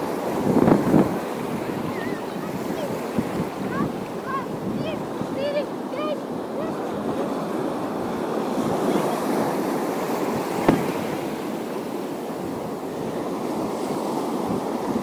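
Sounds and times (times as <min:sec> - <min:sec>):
waves washing against shore: 0:00.0 - 0:15.0
wind buffeting microphone: 0:00.0 - 0:15.0.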